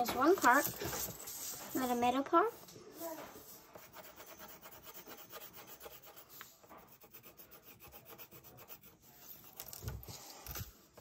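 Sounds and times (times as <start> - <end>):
crayon rubbing on paper: 0.2 - 10.7.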